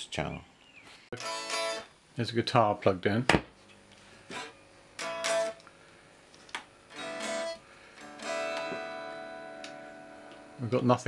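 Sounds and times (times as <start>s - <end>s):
unamplified electric guitar strums: 1.2s - 1.9s, 4.3s - 5.6s, 6.8s - 11.0s.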